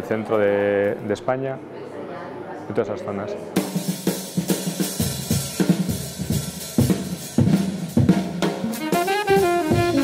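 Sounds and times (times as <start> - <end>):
drum kit playing a busy beat: 3.5 - 10.0.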